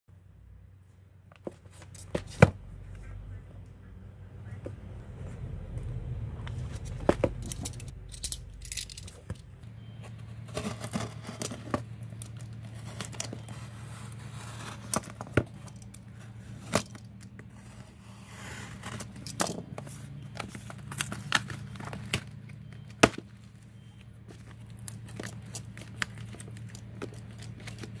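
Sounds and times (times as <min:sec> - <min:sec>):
steady low hum: 0:00.1 - 0:28.0
scraping and crinkling: 0:01.3 - 0:03.1, 0:06.4 - 0:28.0
phone parts clicking and tapping: 0:06.7 - 0:09.8, 0:14.9 - 0:16.1, 0:19.1 - 0:28.0.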